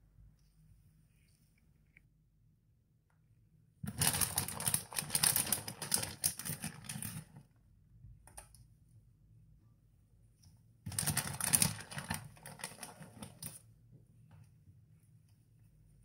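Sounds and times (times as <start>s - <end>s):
plastic bag crinkling: 3.9s - 7.3s, 10.9s - 13.6s.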